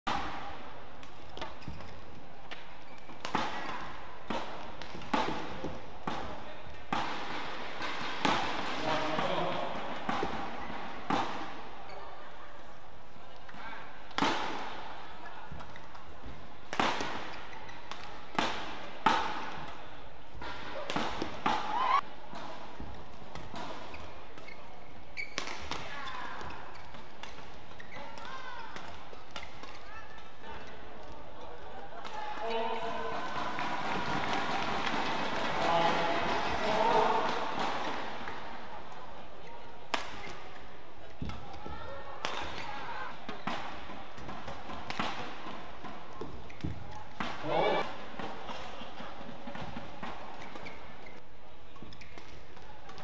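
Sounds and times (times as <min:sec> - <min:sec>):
arena crowd noise: 0:00.1 - 0:53.0
racket striking shuttlecock: 0:02.5 - 0:11.6, 0:16.6 - 0:19.8, 0:20.4 - 0:24.5, 0:43.3 - 0:48.5
shoe squeaks on court: 0:23.8 - 0:25.7, 0:50.3 - 0:51.2
players' footwork: 0:39.9 - 0:53.0.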